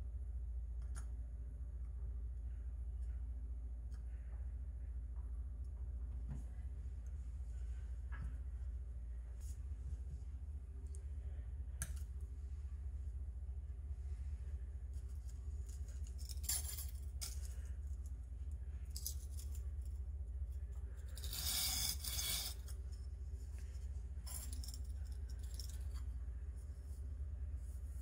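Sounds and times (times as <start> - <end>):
steady low hum: 0.0 - 28.0
knife scraping on whetstone: 21.2 - 22.8.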